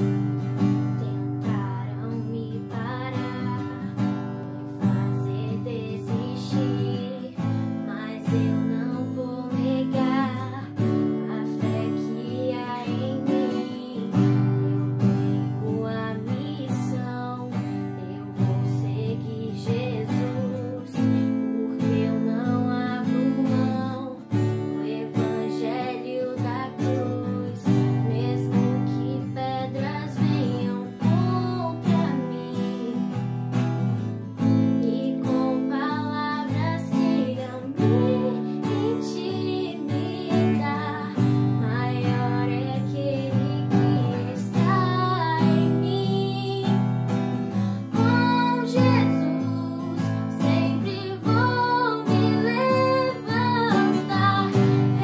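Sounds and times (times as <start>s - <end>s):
acoustic guitar strumming: 0.0s - 55.0s
girl singing: 0.0s - 55.0s.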